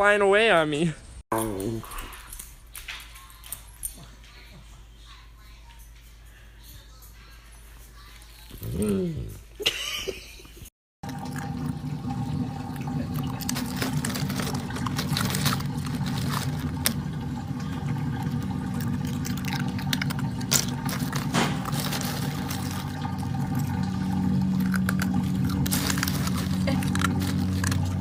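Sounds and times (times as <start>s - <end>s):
steady low hum: 11.6s - 28.0s
crushed ice crunching and clicking: 13.2s - 17.1s, 18.6s - 23.4s, 24.6s - 28.0s.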